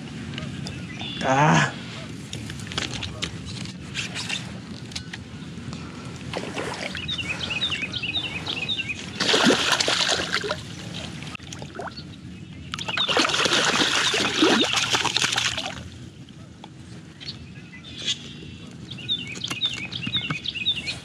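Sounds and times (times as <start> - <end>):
fish splashing in water: 9.1 - 11.9, 12.8 - 15.8.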